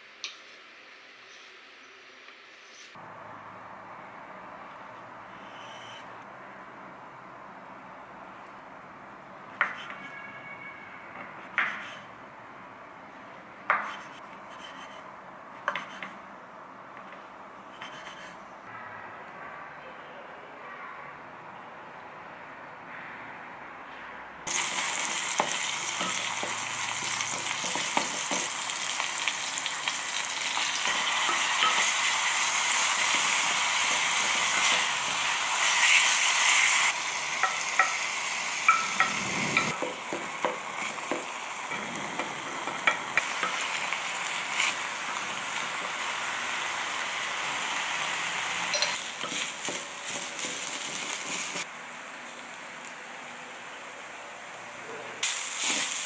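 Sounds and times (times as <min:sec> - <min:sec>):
meat sizzling in oil: 0:24.5 - 0:51.7, 0:55.2 - 0:56.0
spoon knocking against pot: 0:38.7 - 0:41.3.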